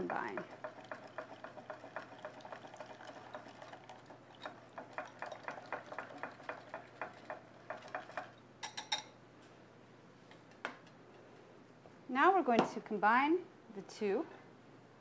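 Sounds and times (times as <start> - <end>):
whisk clicking against bowl: 0.0 - 8.4.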